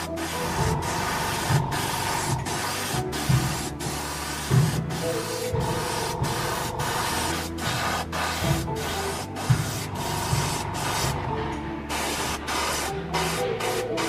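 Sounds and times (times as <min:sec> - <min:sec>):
stuttering electronic music: 0:00.3 - 0:03.1.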